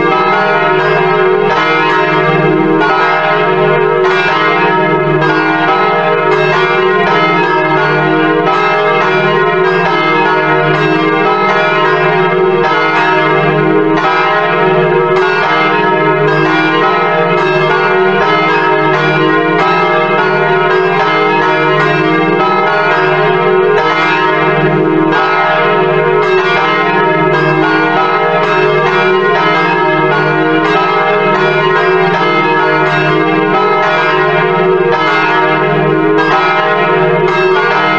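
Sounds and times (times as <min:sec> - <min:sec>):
church bells pealing: 0:00.0 - 0:37.9.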